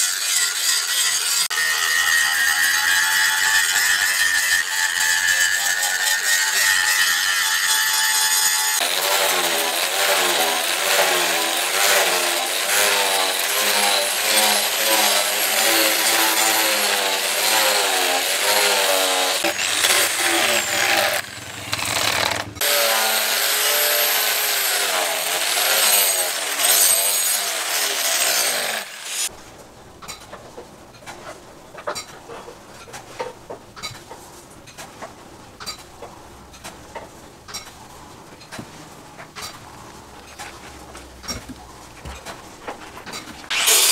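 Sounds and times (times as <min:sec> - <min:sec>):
angle grinder grinding steel: 0:00.0 - 0:29.3, 0:43.5 - 0:43.9.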